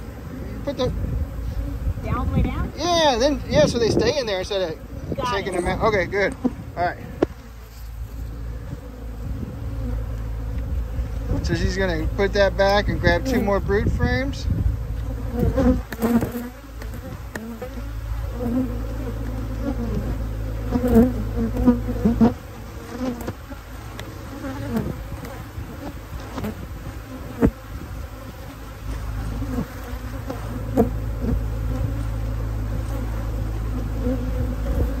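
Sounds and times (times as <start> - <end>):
honey bees buzzing: 0.0 - 35.0
steady low hum: 0.0 - 35.0.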